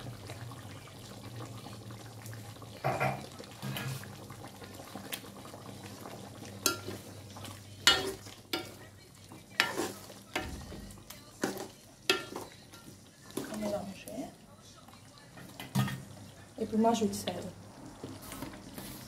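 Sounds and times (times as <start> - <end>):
frying sizzle: 0.0 - 19.0
spatula stirring in wok: 6.6 - 13.8.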